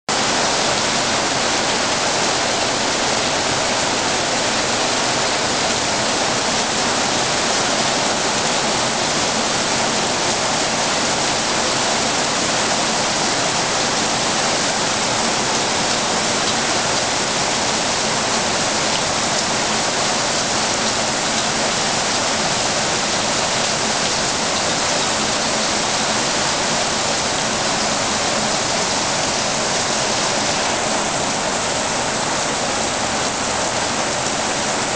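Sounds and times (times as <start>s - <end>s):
heavy rain pouring: 0.1s - 34.9s.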